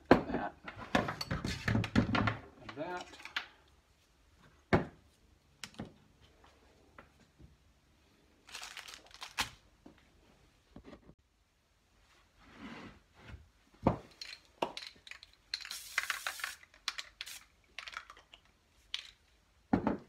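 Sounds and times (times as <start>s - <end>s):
objects clattering on wooden bench: 0.1s - 2.8s.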